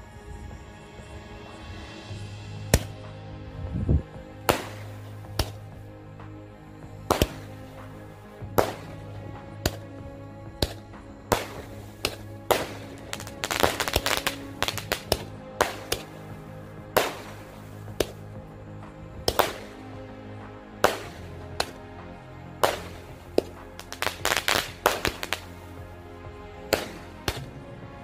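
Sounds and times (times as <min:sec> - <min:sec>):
background music: 0:00.0 - 0:28.0
fireworks crackling pops: 0:10.6 - 0:16.2, 0:22.6 - 0:25.5.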